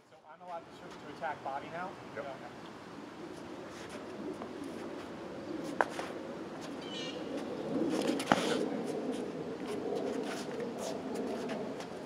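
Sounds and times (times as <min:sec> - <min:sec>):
bird calling: 0:06.8 - 0:07.6.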